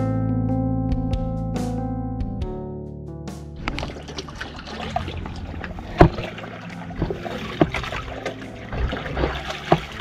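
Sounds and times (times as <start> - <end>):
sharp water slaps: 3.6 - 10.0
water lapping against boat hull: 3.6 - 10.0.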